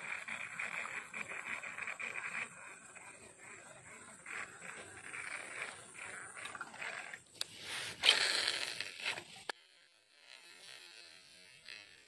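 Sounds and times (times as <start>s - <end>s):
fishing reel handling noise: 4.3s - 12.0s
reel clicks: 4.3s - 12.0s.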